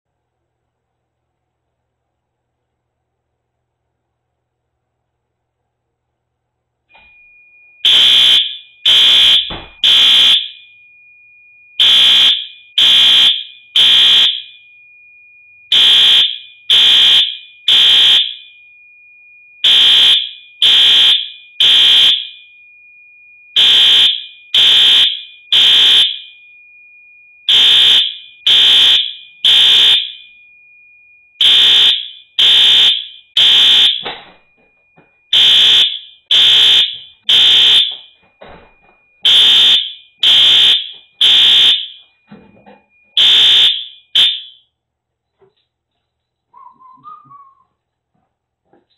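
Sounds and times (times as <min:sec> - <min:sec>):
faint steady tone: 0:00.1 - 0:07.9, 0:09.5 - 0:48.8
fire alarm horn beeps: 0:07.0 - 0:18.8, 0:19.4 - 0:44.7.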